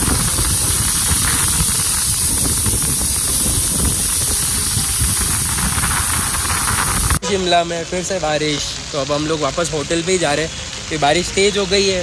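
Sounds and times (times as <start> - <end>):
low rumble: 0.0 - 7.2
heavy rain hissing: 0.0 - 12.0.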